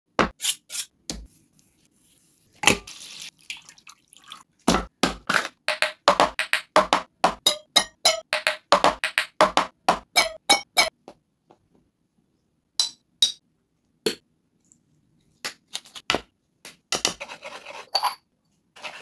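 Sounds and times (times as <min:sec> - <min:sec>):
water splashing and dripping: 0:02.6 - 0:04.7.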